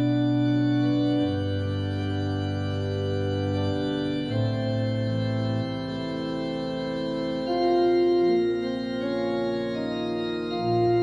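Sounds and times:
organ playing held chords: 0.0 - 11.0.

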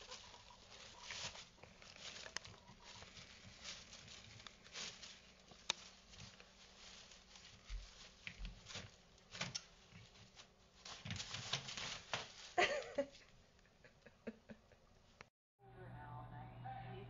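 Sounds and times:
paws scuffing plastic: 0.0 - 13.1
paper rustling: 0.0 - 13.2.

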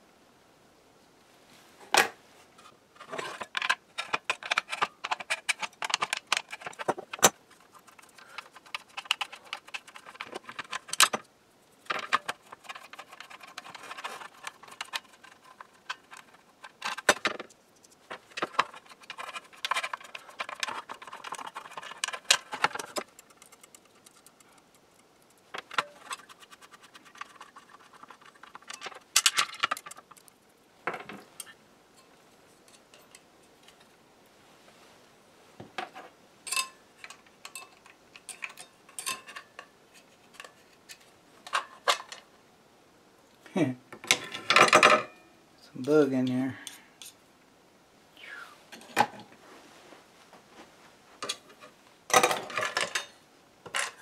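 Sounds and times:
small metal hardware clinking: 36.5 - 39.7.

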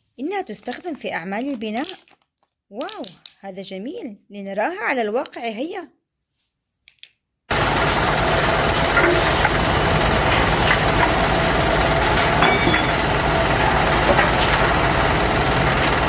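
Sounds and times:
model truck mechanical rumble: 7.5 - 16.0.

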